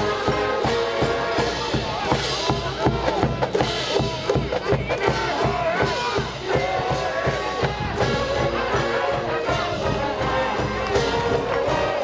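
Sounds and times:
trumpets playing melody: 0.0s - 2.3s, 6.6s - 12.0s
steady drumbeat: 0.0s - 12.0s.

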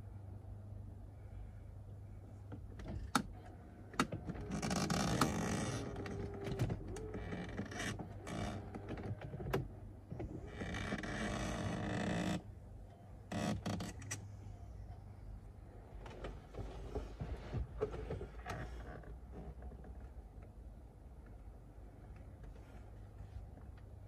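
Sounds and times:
rubbing and scraping handling noise: 16.1s - 18.9s.

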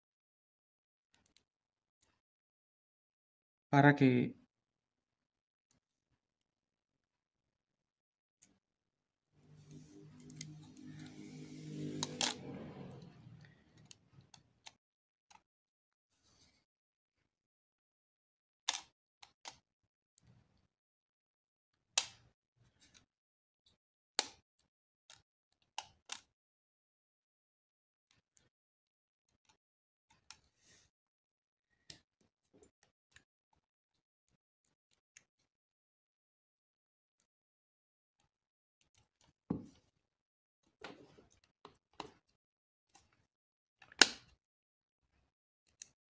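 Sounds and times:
small plastic clicks: 18.7s - 19.6s
sharp snap of clip: 22.0s - 22.2s, 44.0s - 44.3s.

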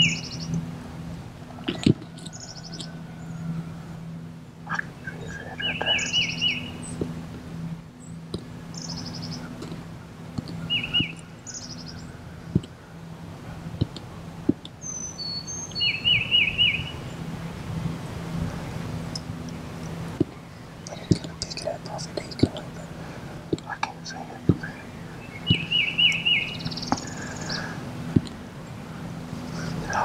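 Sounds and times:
steady low hum: 0.0s - 30.0s
bird whistling phrase: 4.7s - 6.8s
thin bird trills: 10.4s - 12.8s, 24.0s - 28.4s.

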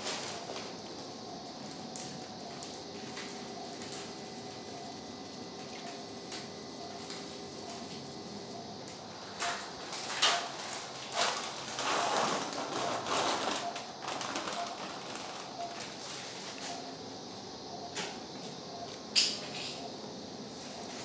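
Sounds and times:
electrosurgical unit activation tone: 0.0s - 9.9s.

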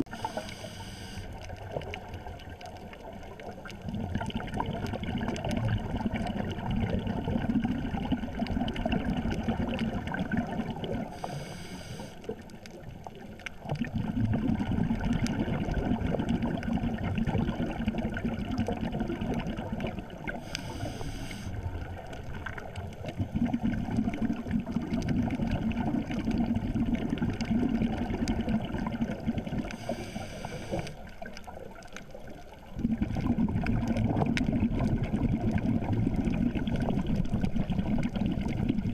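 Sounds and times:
regulator hissing inhalation: 0.1s - 1.3s, 11.2s - 12.2s, 20.4s - 21.6s, 29.8s - 31.0s
rumbling exhaled bubbles: 1.3s - 38.9s.

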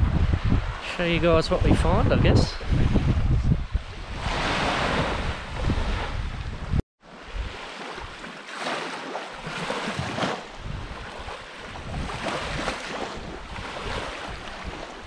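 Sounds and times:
wind rumbling on microphone: 0.0s - 8.2s, 9.4s - 15.0s
small waves washing on sand: 3.8s - 15.0s.

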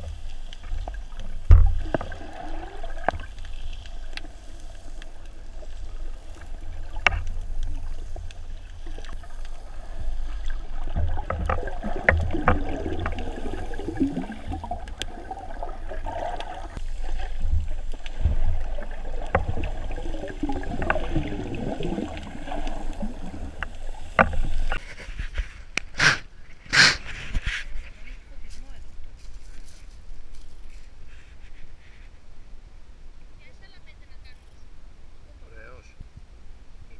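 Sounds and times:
muffled underwater water rumble: 0.0s - 24.8s
water gurgling: 0.0s - 24.8s.

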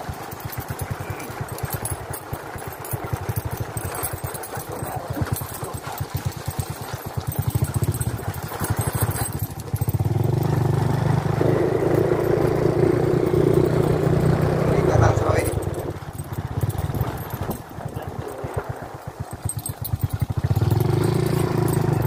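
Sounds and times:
small motorcycle engine running: 0.0s - 22.0s.

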